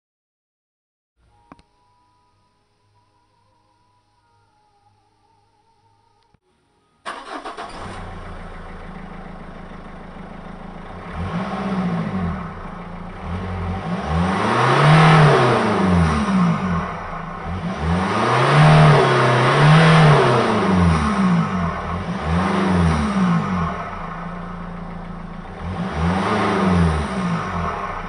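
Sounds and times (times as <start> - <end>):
diesel engine idling and revving: 7.1 - 28.0.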